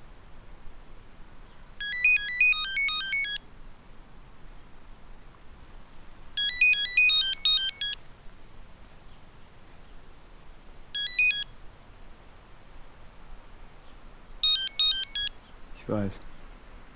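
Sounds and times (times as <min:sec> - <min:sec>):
mobile phone ringtone beeps: 0:01.8 - 0:03.4, 0:06.4 - 0:08.0, 0:11.0 - 0:11.5, 0:14.4 - 0:15.3.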